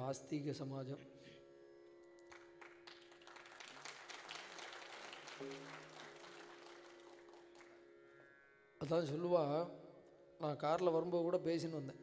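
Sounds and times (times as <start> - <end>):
audience applause: 2.3 - 7.8.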